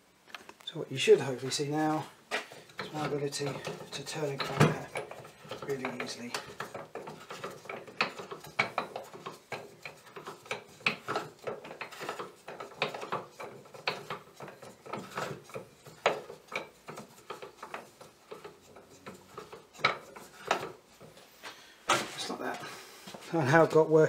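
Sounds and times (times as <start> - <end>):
hand crank clicks and knocks: 2.4 - 21.1.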